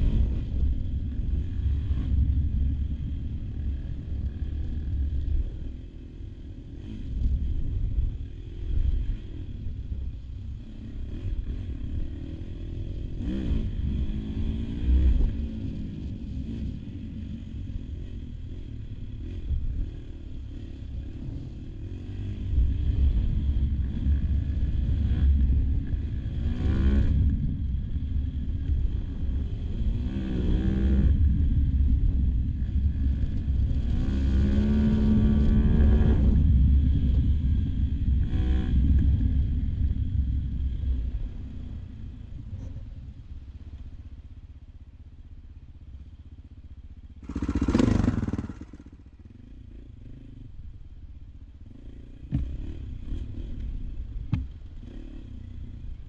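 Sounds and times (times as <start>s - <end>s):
motorcycle engine revving: 0.0s - 43.2s, 44.1s - 56.0s.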